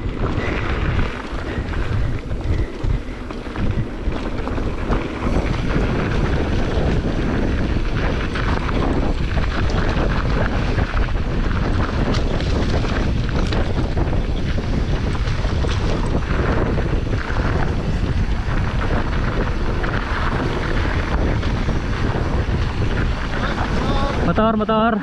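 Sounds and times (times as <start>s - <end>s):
bike rattling over bumps: 0.0s - 25.0s
tyres crunching over dirt: 0.0s - 25.0s
wind rushing over microphone: 0.0s - 25.0s.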